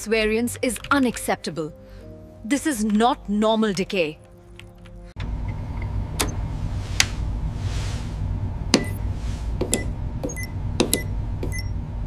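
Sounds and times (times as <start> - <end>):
low electronic hum: 5.2 - 12.0
soft whooshes: 6.4 - 9.7.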